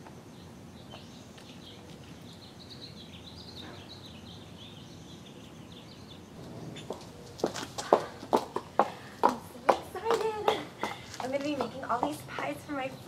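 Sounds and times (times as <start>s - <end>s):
outdoor background hum: 0.0s - 13.0s
small birds chirping: 0.0s - 13.0s
high-heel footsteps on concrete: 6.4s - 13.0s.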